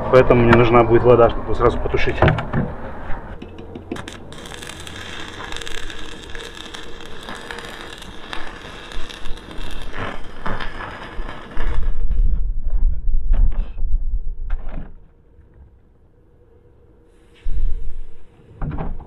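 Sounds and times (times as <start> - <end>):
arc welding crackling: 3.6 - 12.5.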